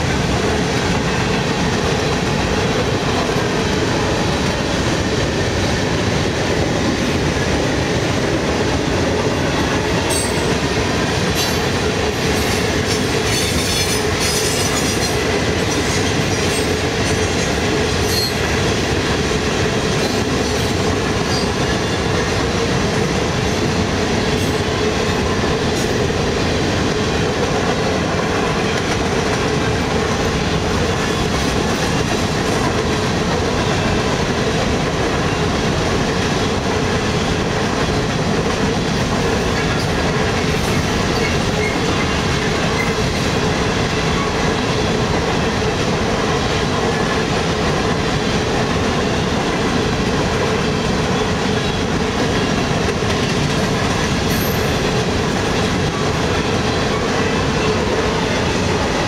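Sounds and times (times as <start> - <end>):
freight train rumbling past: 0.0 - 59.0
wheels clacking on rails: 0.0 - 59.0.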